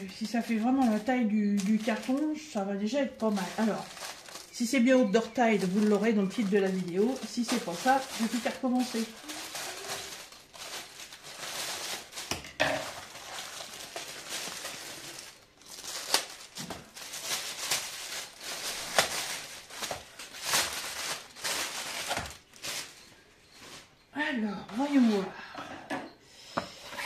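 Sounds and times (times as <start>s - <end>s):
scissors cutting plastic bag: 0.0s - 2.4s, 5.2s - 22.9s
plastic rustling and crinkling: 0.0s - 24.1s.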